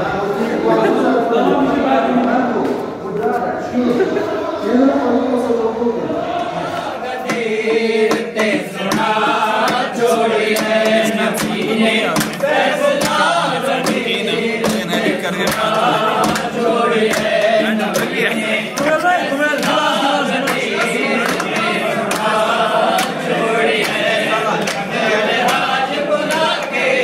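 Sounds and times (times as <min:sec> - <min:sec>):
men singing a chant: 0:03.8 - 0:27.0
hand claps: 0:06.8 - 0:27.0.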